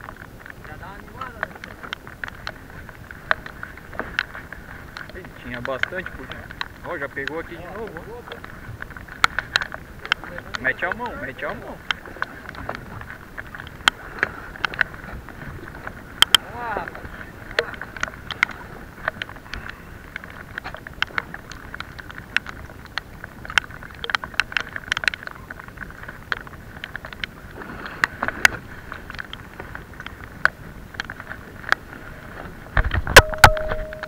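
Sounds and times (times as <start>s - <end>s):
clicks and knocks: 32.8s - 34.0s.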